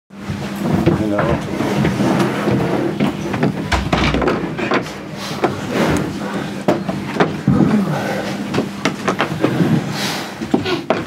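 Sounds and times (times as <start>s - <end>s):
knocks and clicks of handling: 3.0s - 5.6s.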